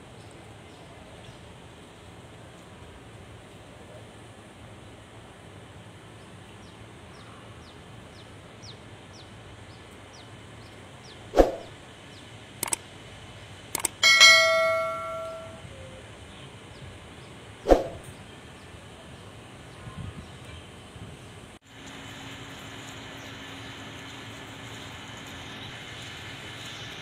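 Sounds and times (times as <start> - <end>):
quiet outdoor ambience: 0.0 - 27.0
short clicks: 12.6 - 12.8, 13.7 - 14.0
notification bell ding: 14.0 - 15.6.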